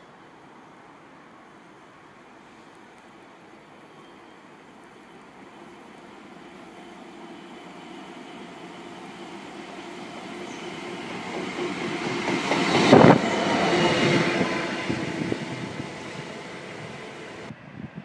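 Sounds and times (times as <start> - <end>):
diesel locomotive passing: 3.6 - 17.8.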